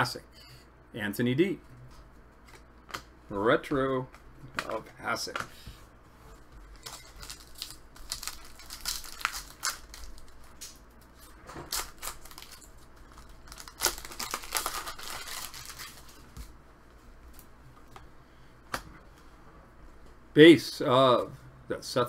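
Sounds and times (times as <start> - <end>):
foil pack crinkling and tearing: 6.7 - 16.4
cards shuffling: 6.7 - 16.5.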